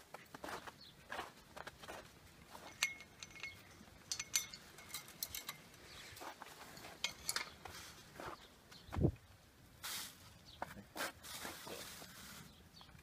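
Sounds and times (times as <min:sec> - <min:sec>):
light metallic clinks: 0:02.4 - 0:07.7.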